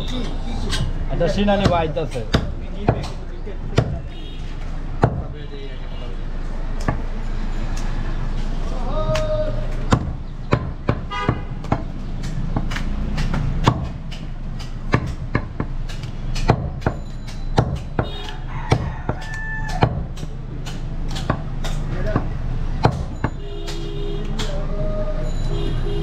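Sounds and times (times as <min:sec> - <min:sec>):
knife chopping meat and bone: 0:00.0 - 0:04.1, 0:05.0 - 0:05.3, 0:09.1 - 0:24.6.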